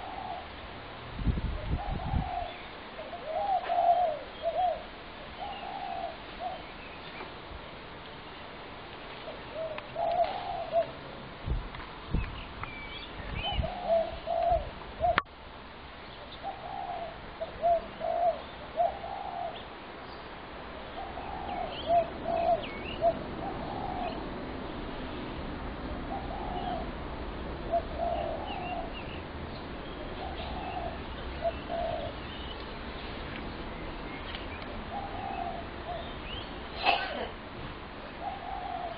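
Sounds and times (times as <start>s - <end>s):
doves cooing: 0.0s - 0.6s, 1.8s - 6.7s, 9.2s - 11.2s, 13.4s - 15.3s, 16.4s - 19.7s, 20.8s - 24.4s, 25.9s - 29.3s, 30.0s - 32.7s, 34.6s - 37.2s, 38.1s - 38.9s
small birds chirping: 1.7s - 7.4s, 12.0s - 15.3s, 16.0s - 27.0s, 27.6s - 37.0s.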